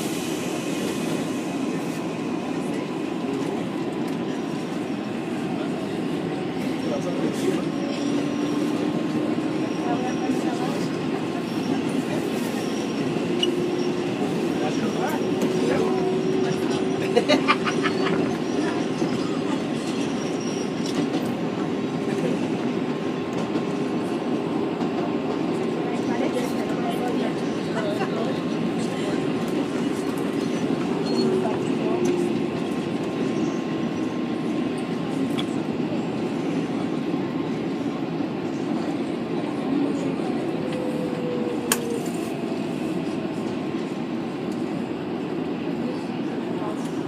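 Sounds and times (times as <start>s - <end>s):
subway train rumble: 0.0s - 47.0s
faint high wheel squeal: 17.7s - 21.0s, 30.4s - 31.7s.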